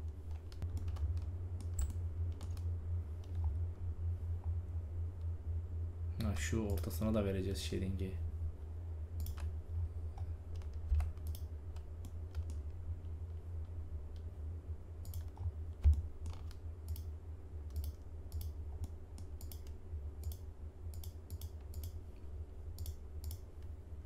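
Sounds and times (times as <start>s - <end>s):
computer mouse clicks: 0.0s - 3.6s, 9.2s - 9.5s, 10.2s - 12.8s, 15.0s - 22.0s, 22.7s - 23.7s
steady low hum: 0.0s - 24.0s
keyboard clicks: 10.2s - 12.7s, 15.0s - 17.1s, 17.7s - 22.0s.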